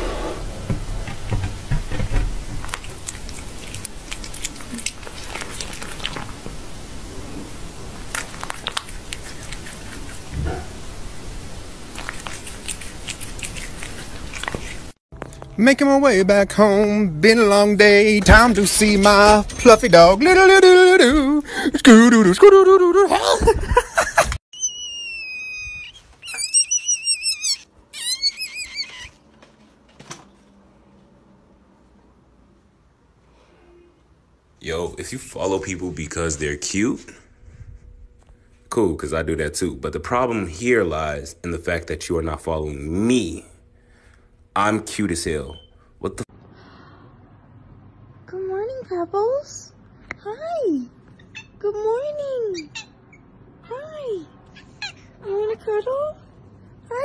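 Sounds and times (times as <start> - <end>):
cat licking and chewing: 2.6 - 6.6, 8.0 - 10.8, 11.8 - 15.0.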